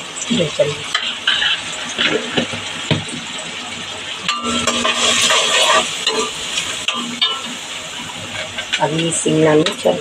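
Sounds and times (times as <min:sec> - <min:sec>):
onions sizzling in oil: 0:00.0 - 0:10.0
spatula scraping pan: 0:00.9 - 0:02.7, 0:04.3 - 0:10.0.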